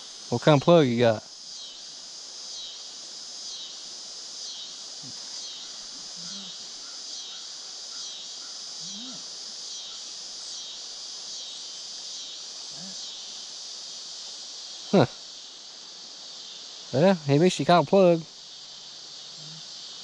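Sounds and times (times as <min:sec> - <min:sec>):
insects buzzing: 0:00.0 - 0:20.0.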